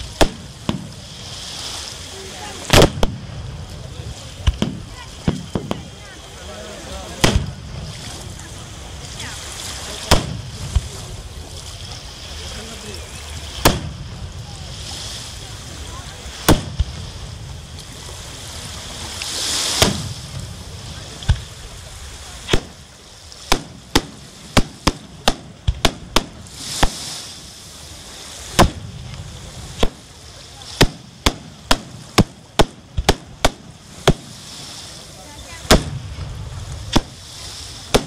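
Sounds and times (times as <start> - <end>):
rising firework hiss: 0.0 - 38.0.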